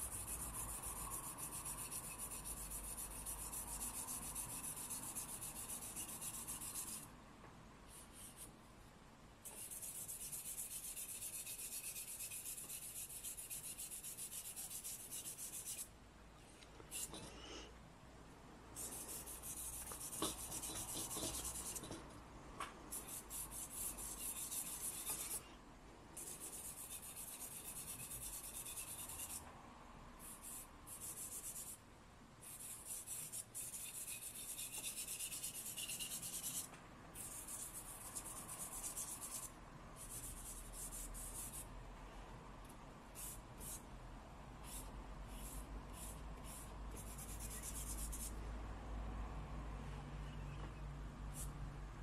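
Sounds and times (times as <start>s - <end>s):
charcoal scratching on paper: 0.0s - 7.1s, 7.9s - 8.5s, 9.4s - 15.9s, 16.9s - 17.3s, 18.8s - 22.0s, 22.9s - 25.5s, 26.2s - 29.4s, 30.2s - 31.8s, 32.4s - 41.7s, 43.1s - 43.8s, 44.6s - 48.3s.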